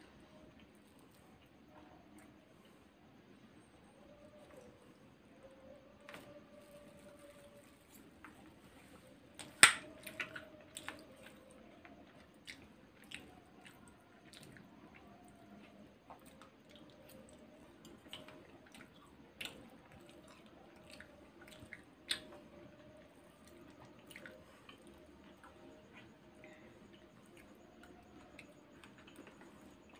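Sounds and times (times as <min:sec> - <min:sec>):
person chewing: 0:06.1 - 0:29.9.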